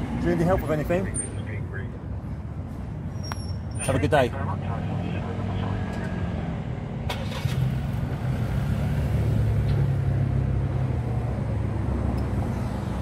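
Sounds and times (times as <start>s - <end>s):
car engine pulling away: 7.0s - 10.8s.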